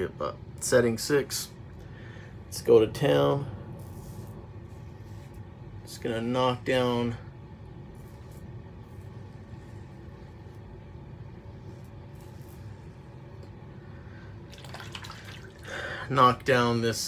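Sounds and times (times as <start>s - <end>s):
low room hum: 0.0s - 17.0s
razor scraping stubble: 11.4s - 13.2s.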